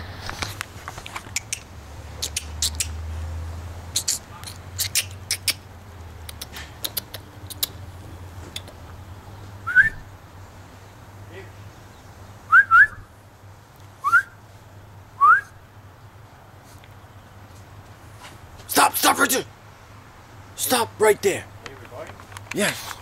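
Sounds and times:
sharp clicks: 0.4s - 3.0s, 6.2s - 7.8s, 8.5s - 8.8s, 21.6s - 23.0s
person whistling short notes: 9.7s - 10.0s, 12.5s - 13.0s, 14.0s - 14.4s, 15.2s - 15.5s.

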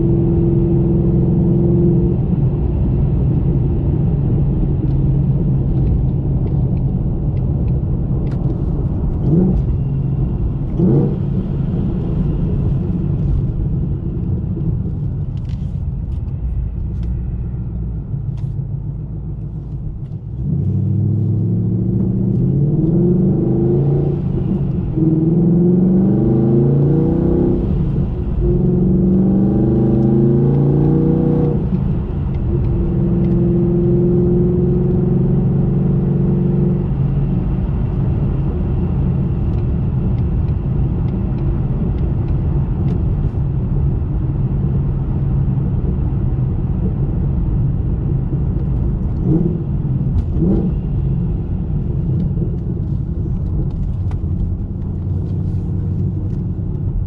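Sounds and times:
car engine rumbling: 0.0s - 57.0s
engine revving through upshifts: 20.4s - 31.8s.

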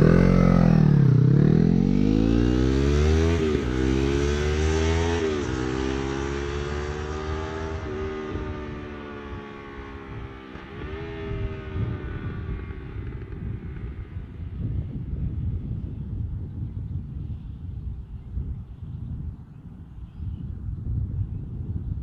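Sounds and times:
motorcycle engine accelerating: 0.0s - 16.9s.

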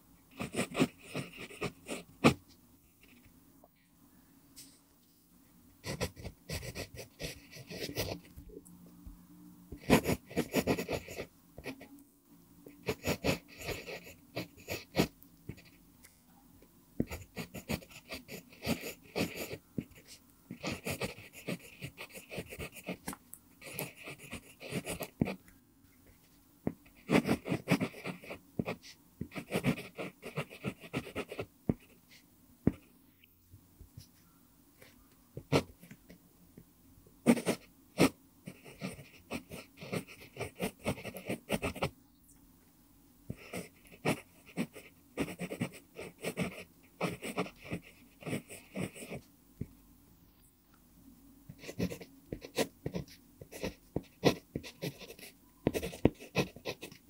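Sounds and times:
pencil scratching on paper: 0.3s - 2.4s, 5.8s - 8.3s, 9.7s - 11.9s, 12.8s - 15.8s, 17.0s - 25.4s, 26.8s - 32.1s, 32.7s - 32.9s, 34.8s - 36.1s, 37.2s - 41.9s, 43.3s - 49.2s, 51.5s - 57.0s.

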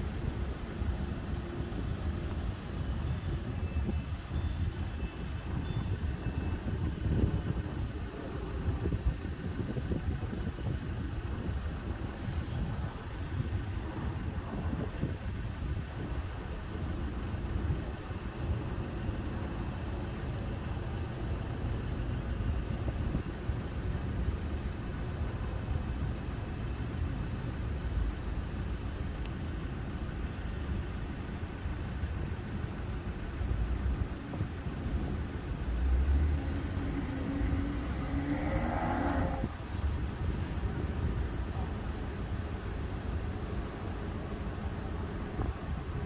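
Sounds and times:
idling engines rumble: 0.0s - 46.0s
rising whine: 35.0s - 39.9s.

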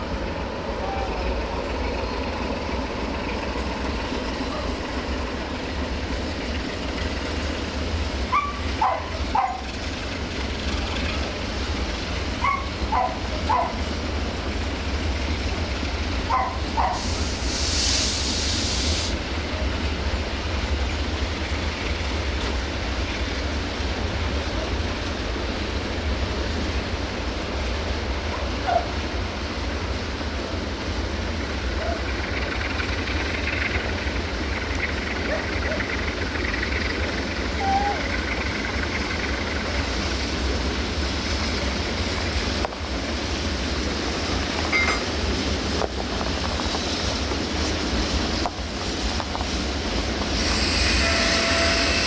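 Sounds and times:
freight train rumbling past: 0.0s - 52.0s
dog barking: 8.3s - 9.6s, 12.4s - 13.8s, 16.3s - 17.0s, 28.3s - 29.0s
air hiss: 16.9s - 19.3s, 50.2s - 52.0s.

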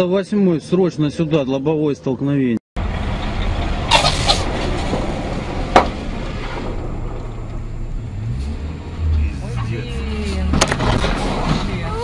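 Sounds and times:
vehicle driving rumble: 2.8s - 12.0s.

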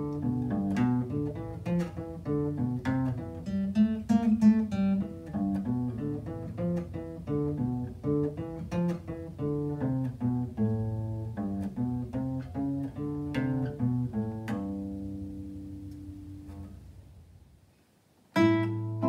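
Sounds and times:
acoustic guitar boogie riff: 0.0s - 16.8s, 18.3s - 19.0s.

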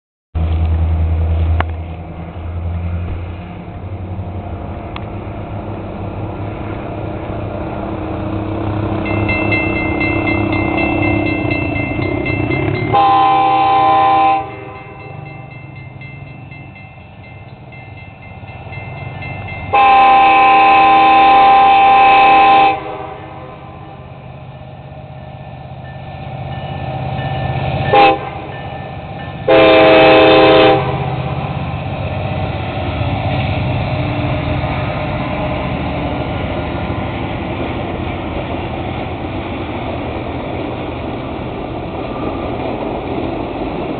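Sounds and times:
train cars rumbling over crossing: 0.4s - 43.9s
train horn blasts: 12.8s - 15.1s, 19.7s - 24.1s, 27.9s - 28.6s, 29.4s - 31.3s.

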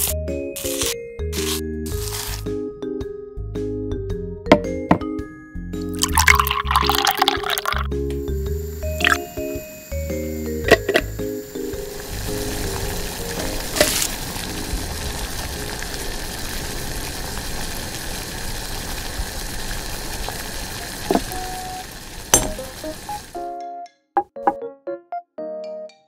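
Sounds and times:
water boiling hard: 6.0s - 23.4s.

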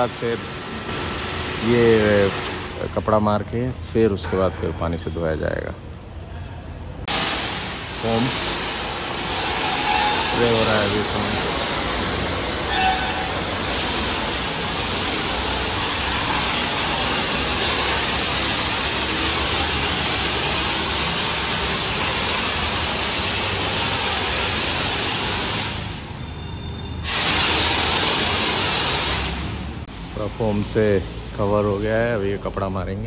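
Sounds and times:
foam spray gun hissing: 0.0s - 2.7s, 7.1s - 26.1s, 27.0s - 29.8s.

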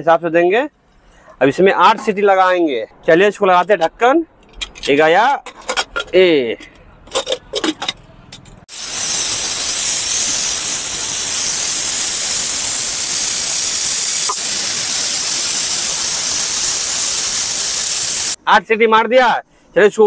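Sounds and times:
pressure cooker steam hissing: 8.7s - 18.4s.

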